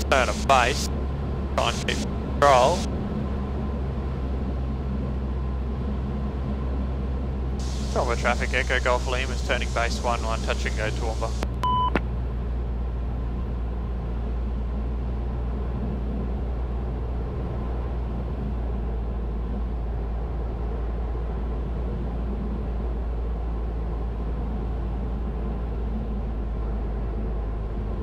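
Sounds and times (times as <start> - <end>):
airflow noise: 0.0 - 0.9, 7.6 - 11.4
airplane engine droning in cabin: 0.0 - 28.0.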